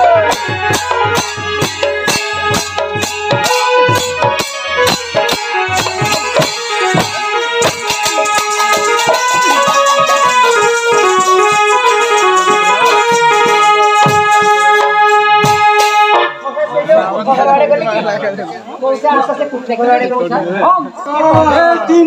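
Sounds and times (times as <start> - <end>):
dhol drum strokes: 0.0 - 16.4, 21.2 - 22.0
keyboard melody: 0.0 - 17.9
hand cymbal: 0.1 - 16.1.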